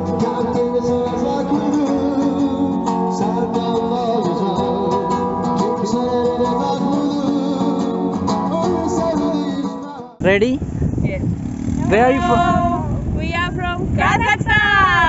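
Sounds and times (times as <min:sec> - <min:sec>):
person singing: 0:00.0 - 0:10.2
plucked guitar: 0:00.0 - 0:10.2.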